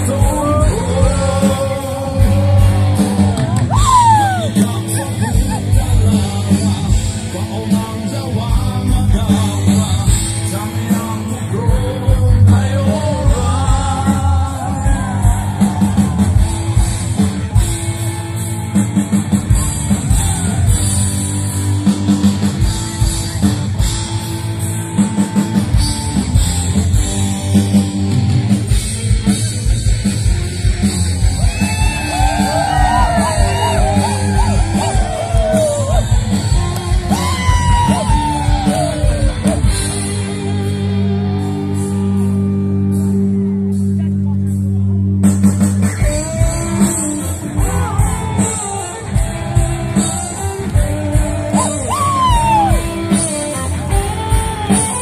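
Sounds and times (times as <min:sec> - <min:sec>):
person singing: 0:00.0 - 0:16.2
crowd yelling and cheering: 0:00.0 - 0:55.0
live rock band: 0:00.0 - 0:55.0.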